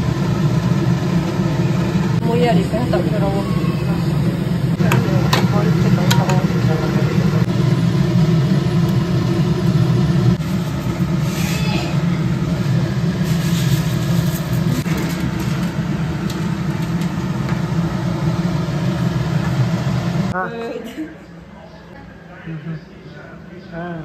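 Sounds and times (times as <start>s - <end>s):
motor hum: 0.0s - 20.4s
seeds poured into wok: 13.1s - 15.8s.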